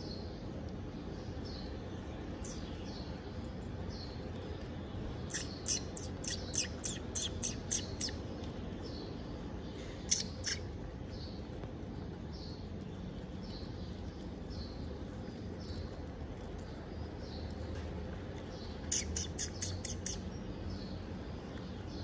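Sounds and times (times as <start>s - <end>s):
hamsters chewing crisp food: 0.0s - 22.0s.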